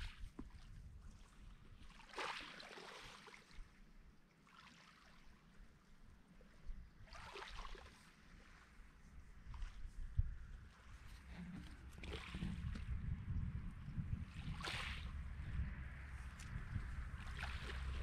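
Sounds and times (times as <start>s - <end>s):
small waves lapping on pebbles: 0.0s - 10.0s, 10.7s - 13.0s, 14.2s - 18.0s.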